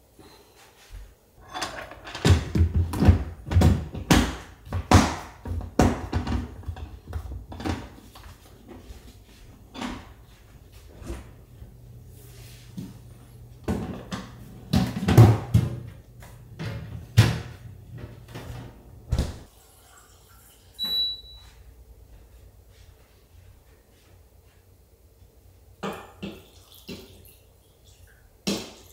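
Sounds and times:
knocks and clunks in refrigerator: 19.1 - 19.5
short high beep: 20.8 - 21.4.

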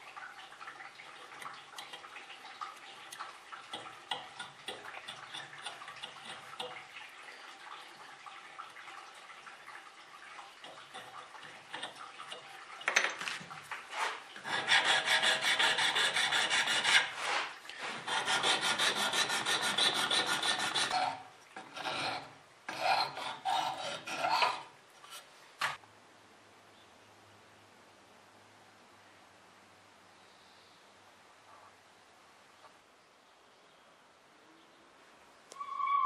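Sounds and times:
rasping bone by hand: 14.4 - 25.3
faint steady hum: 20.8 - 36.0.

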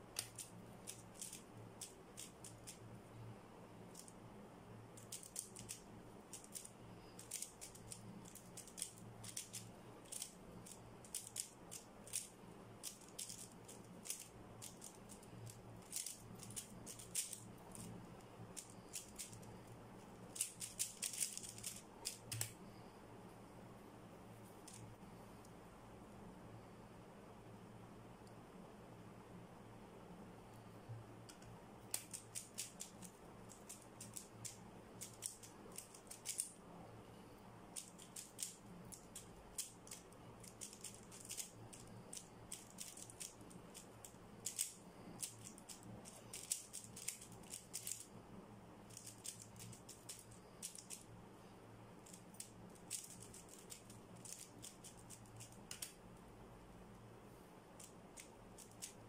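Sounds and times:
puzzle cube clicking: 0.2 - 2.8, 5.0 - 18.0, 18.6 - 19.5, 20.3 - 22.6, 31.9 - 36.5, 37.8 - 48.0, 48.9 - 51.0, 52.0 - 56.0.

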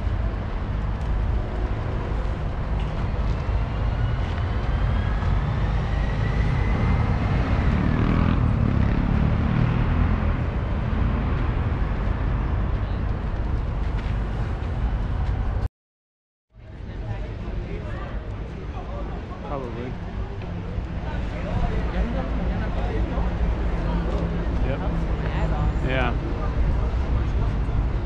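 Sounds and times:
city traffic rumble: 0.0 - 15.7, 16.5 - 28.0.

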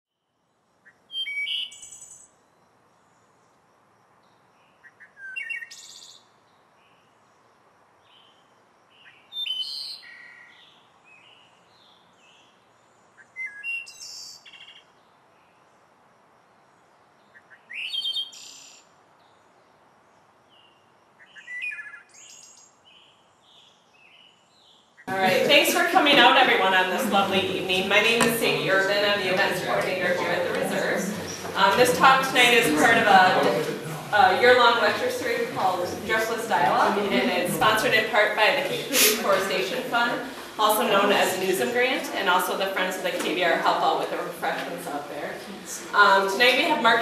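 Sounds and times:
songbird chirping song: 0.1 - 25.1
faint steady hiss: 22.1 - 47.0.

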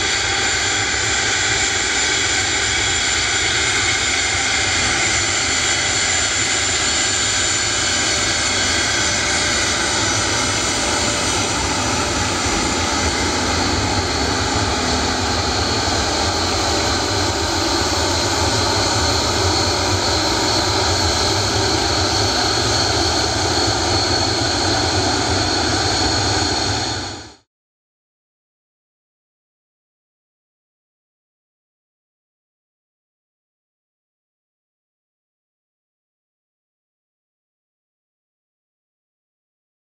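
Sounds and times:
rush of noise: 0.0 - 27.4
jet engine whine: 0.0 - 27.5.

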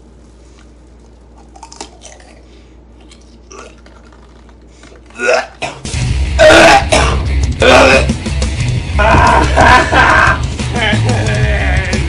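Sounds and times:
mouth and handling noises: 0.1 - 5.7.

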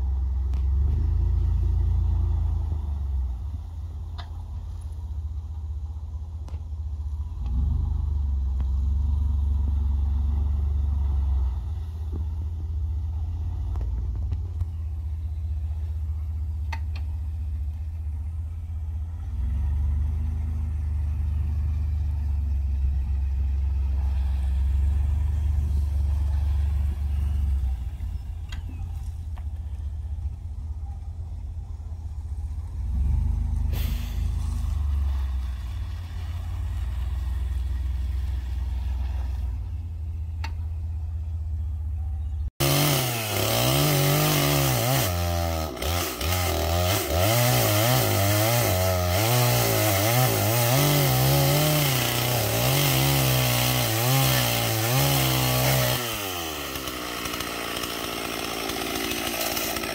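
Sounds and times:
pickup truck engine rumble: 0.0 - 42.6.

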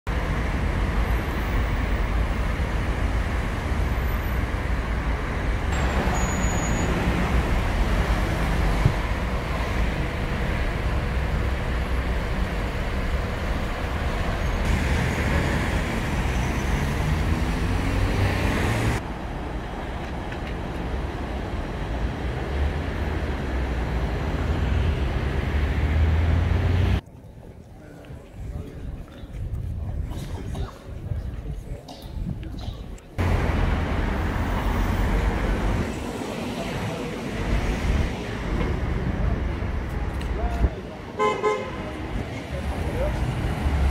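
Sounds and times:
passing cars rumble: 0.1 - 27.0, 33.2 - 43.9
vehicle accelerating: 14.6 - 19.0, 22.0 - 27.0.

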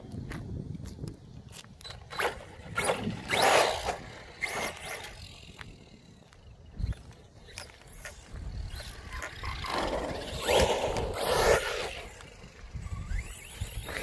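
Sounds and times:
electric motor whining: 6.8 - 14.0
tyre noise: 6.8 - 14.0.

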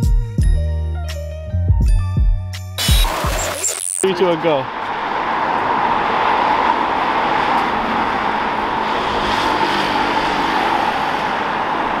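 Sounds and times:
road traffic noise: 2.8 - 12.0
car passing by: 4.1 - 12.0.

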